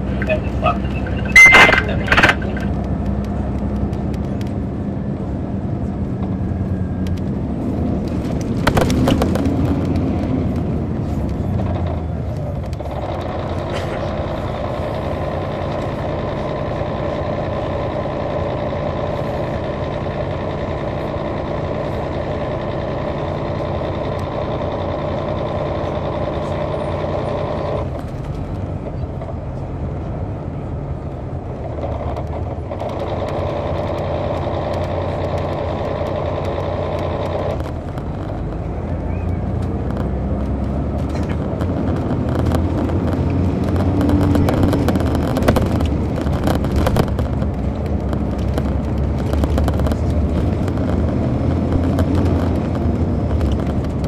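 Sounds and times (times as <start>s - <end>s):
diesel coach engine running: 0.0s - 54.0s.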